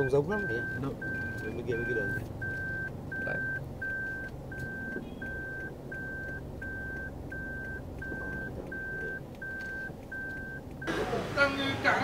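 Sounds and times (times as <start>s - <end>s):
high electronic beeps: 0.0s - 11.0s.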